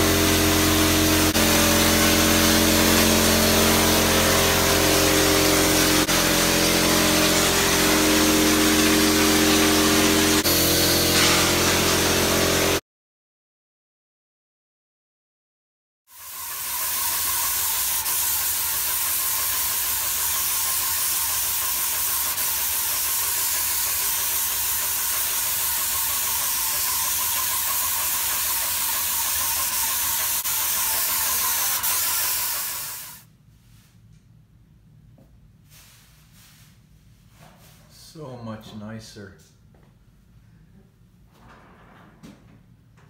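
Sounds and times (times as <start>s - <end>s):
spray gun hissing: 0.4s - 10.4s, 16.1s - 33.2s.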